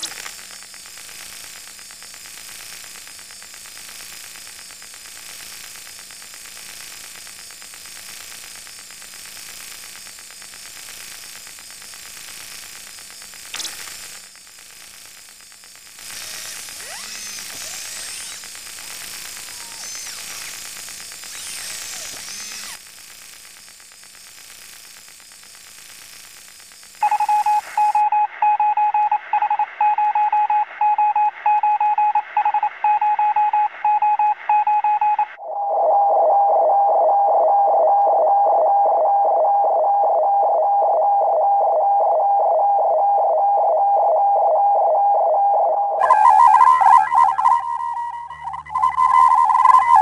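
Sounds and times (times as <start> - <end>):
radio static hiss: 0.0 - 28.0, 46.0 - 50.0
short and long tone beeps: 27.0 - 50.0
pulsing steady tone: 35.4 - 50.0.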